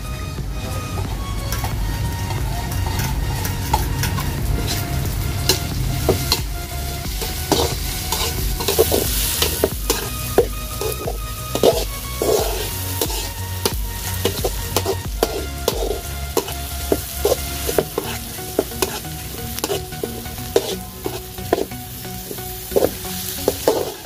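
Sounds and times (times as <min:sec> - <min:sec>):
onions sizzling in hot oil: 0:01.5 - 0:24.0
utensil scraping and knocking pan: 0:07.2 - 0:21.7.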